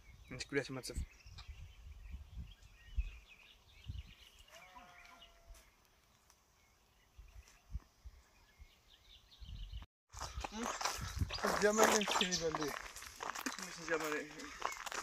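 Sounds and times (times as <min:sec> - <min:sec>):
faint bird chirps: 0:00.0 - 0:05.9
faint drawn-out animal call: 0:04.5 - 0:05.6.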